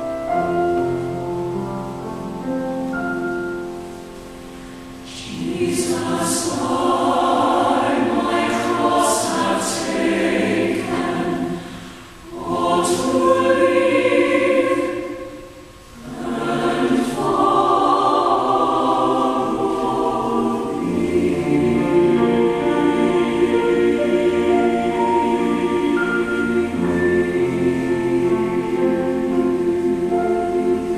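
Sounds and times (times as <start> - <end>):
piano accompaniment: 0.0 - 30.9
choir singing a hymn: 5.0 - 30.9.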